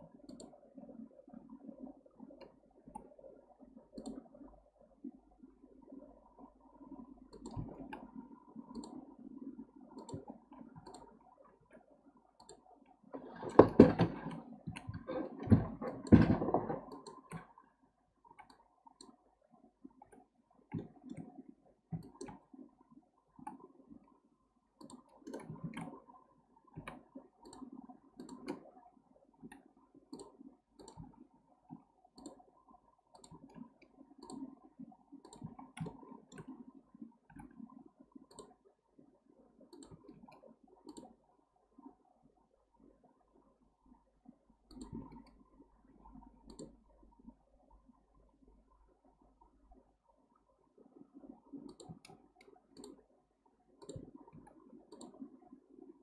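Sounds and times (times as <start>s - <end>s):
mouse and keyboard clicking: 7.3s - 8.0s, 8.7s - 9.0s, 10.0s - 11.1s, 21.9s - 22.4s, 24.8s - 26.0s, 26.7s - 28.7s, 29.5s - 31.2s, 33.1s - 34.5s, 35.2s - 36.6s, 39.7s - 41.1s, 44.7s - 45.4s, 51.6s - 53.0s, 53.8s - 55.2s
knocks and rustling: 13.2s - 16.9s.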